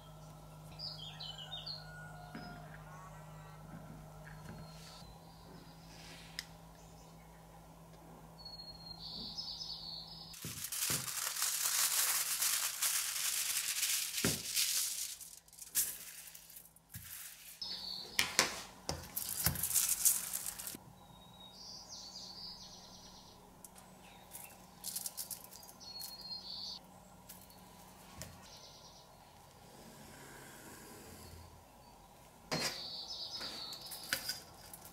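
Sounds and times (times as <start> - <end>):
kitchen foil rustling and crinkling: 10.4 - 17.6, 18.9 - 20.8, 24.3 - 26.2, 33.8 - 34.9.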